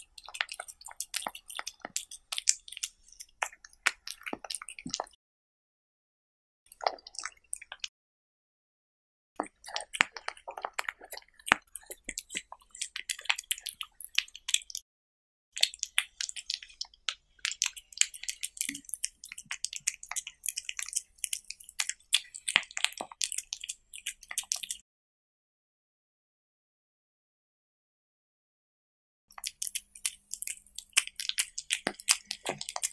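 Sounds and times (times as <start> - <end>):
cat chewing wetly: 0.0 - 5.2, 6.7 - 7.9, 9.4 - 14.8, 15.6 - 24.8, 29.3 - 32.9.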